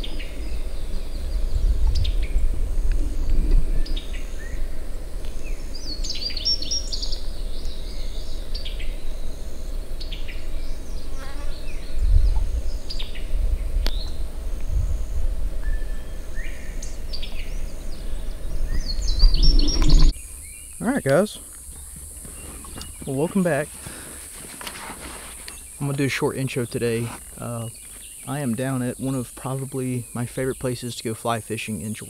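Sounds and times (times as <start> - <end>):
low rumble: 0.0 - 6.4, 11.8 - 20.6
insect buzz: 0.0 - 32.0
bird chirps: 5.3 - 14.8, 15.6 - 23.6.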